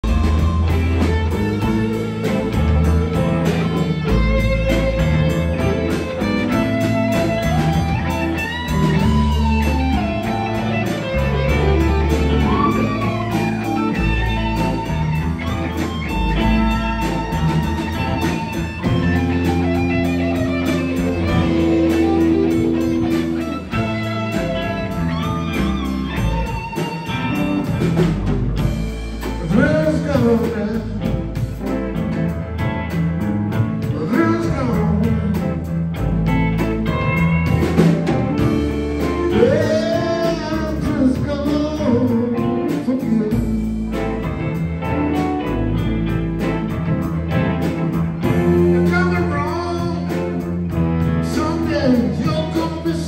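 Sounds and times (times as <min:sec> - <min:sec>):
bass: 0:00.0 - 0:53.0
blues electric guitar jam: 0:00.0 - 0:53.0.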